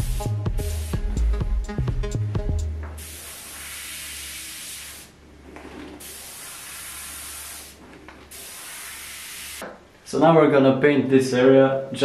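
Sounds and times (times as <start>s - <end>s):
airbrush hissing: 0.0s - 1.2s, 3.0s - 5.2s, 5.9s - 9.6s.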